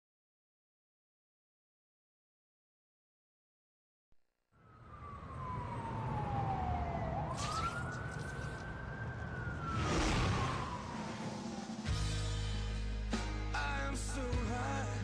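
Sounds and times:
sliding siren-like tone: 0:04.6 - 0:12.0
wash of noise: 0:06.2 - 0:11.9
whooshes: 0:09.4 - 0:12.0.

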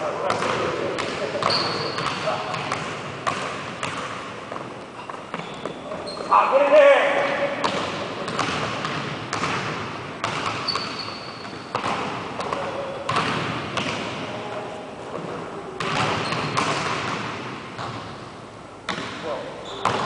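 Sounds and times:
basketball bouncing on hardwood floor: 0:00.3 - 0:04.7, 0:07.6 - 0:14.1, 0:15.2 - 0:18.0, 0:19.8 - 0:20.0.

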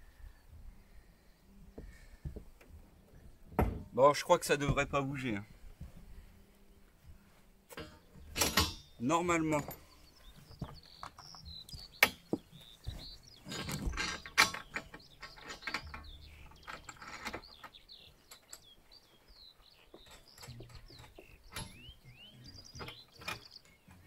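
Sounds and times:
small birds chirping: 0:04.2 - 0:24.0
hand tools clicking on metal: 0:13.4 - 0:18.7.

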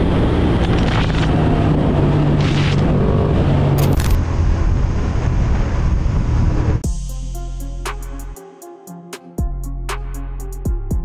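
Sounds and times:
wind noise on microphone: 0:00.0 - 0:06.8.

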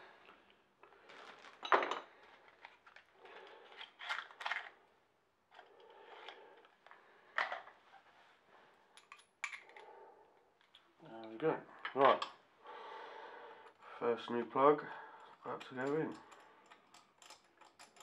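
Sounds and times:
small metal parts rattling: 0:15.2 - 0:18.0.

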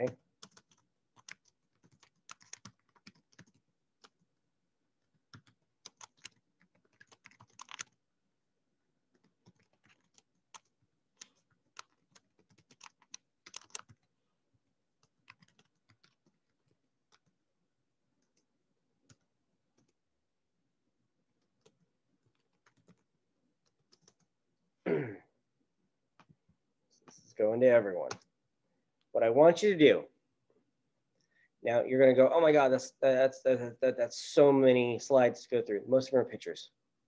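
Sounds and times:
faint keyboard typing: 0:00.0 - 0:04.3, 0:05.0 - 0:08.0, 0:09.1 - 0:17.4, 0:18.1 - 0:20.0, 0:21.3 - 0:24.4, 0:26.1 - 0:27.4, 0:28.0 - 0:28.3.

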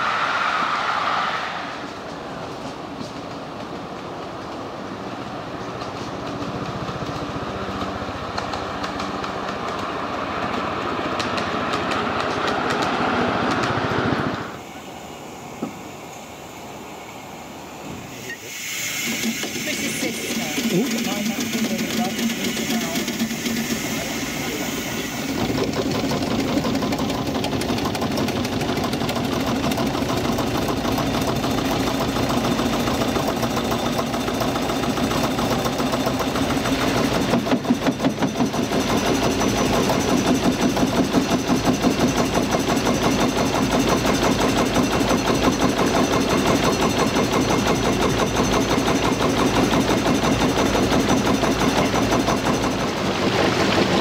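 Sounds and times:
steam engine running: 0:17.9 - 0:54.0.

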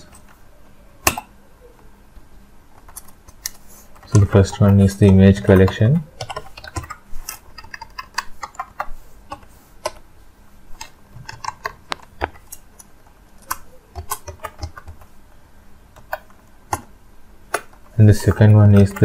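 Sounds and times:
computer keyboard typing: 0:02.8 - 0:10.0, 0:10.8 - 0:15.1, 0:16.0 - 0:16.9, 0:17.5 - 0:19.0.

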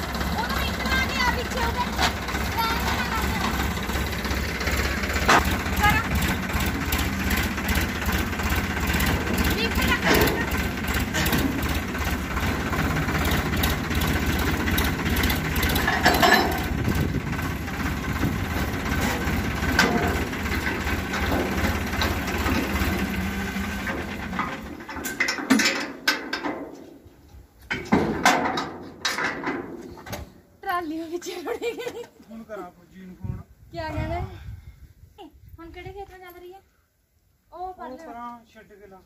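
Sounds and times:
tractor engine idling: 0:00.0 - 0:26.8.

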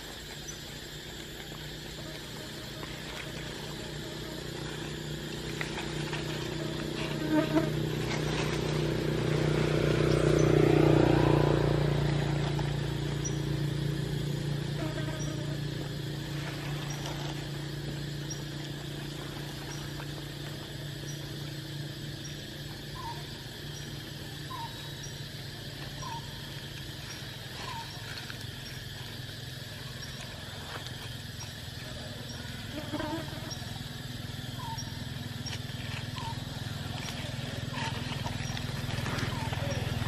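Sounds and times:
flying insect buzzing: 0:00.0 - 0:23.2, 0:32.3 - 0:40.0
short squeaky calls: 0:36.2 - 0:36.4.

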